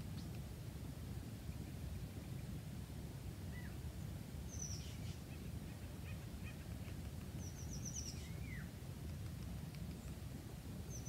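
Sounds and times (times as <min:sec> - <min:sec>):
small birds calling: 0:04.5 - 0:08.7.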